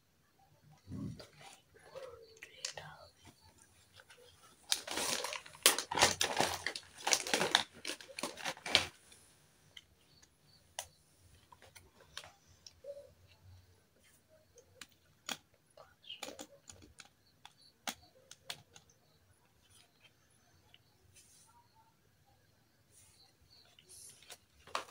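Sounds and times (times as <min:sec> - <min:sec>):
plastic toy pieces clattering: 0:04.7 - 0:09.0.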